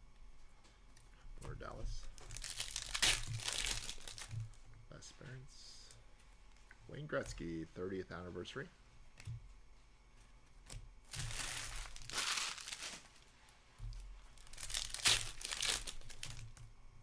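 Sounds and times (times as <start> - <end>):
foil wrapper crinkling: 1.9 - 4.5, 11.0 - 16.7.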